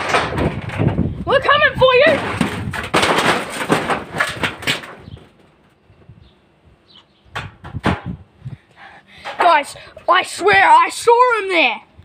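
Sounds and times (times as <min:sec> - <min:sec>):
sharp knocks: 0:07.3 - 0:08.2.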